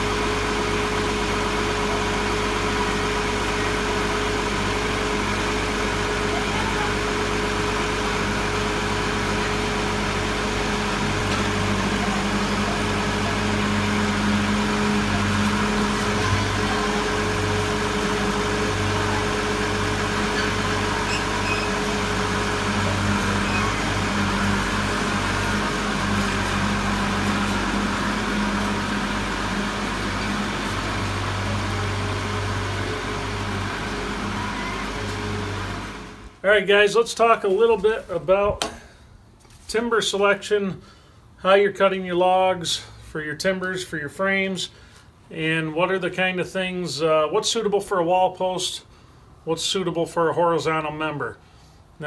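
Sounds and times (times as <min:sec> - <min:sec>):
tractor engine running: 0:00.0 - 0:38.6.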